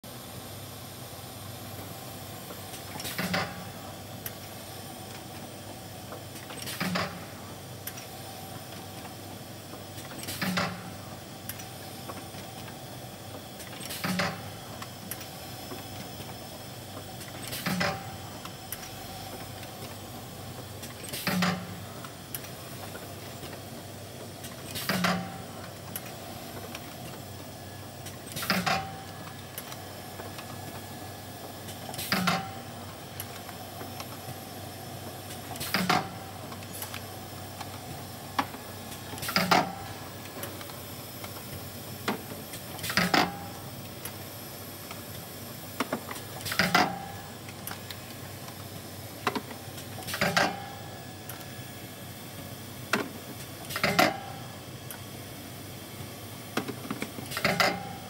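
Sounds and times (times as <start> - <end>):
packing machine mechanical stroke: 13.5 - 23.6, 24.3 - 34.5, 35.1 - 44.2.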